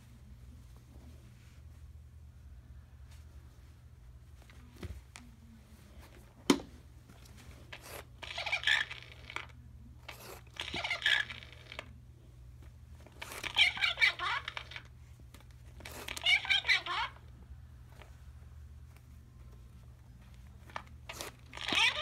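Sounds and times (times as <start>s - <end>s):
talking doll tinny voice: 16.2s - 17.2s.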